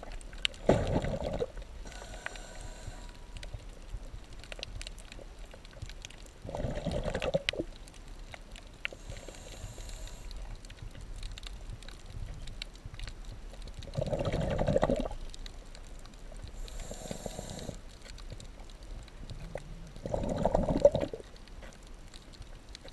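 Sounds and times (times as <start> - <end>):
exhaled bubbles gurgling underwater: 0.0 - 21.4
regulator hissing on in-breath: 1.8 - 3.4, 8.9 - 10.4, 16.6 - 17.8.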